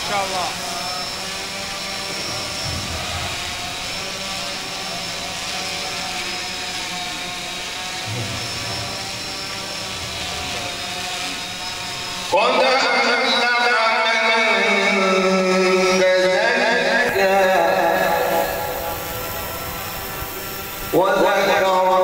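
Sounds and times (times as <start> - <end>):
man reciting over loudspeakers: 12.3 - 19.0, 20.9 - 22.0.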